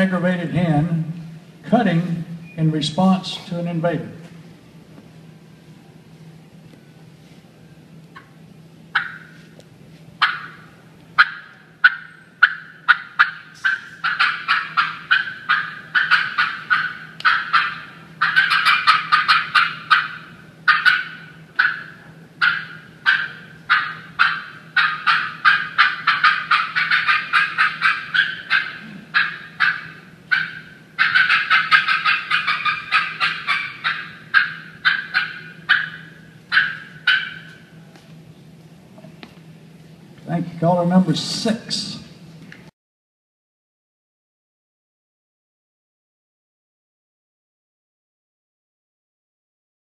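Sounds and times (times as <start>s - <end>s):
turkey call clucks: 8.2s - 9.4s, 10.2s - 37.7s.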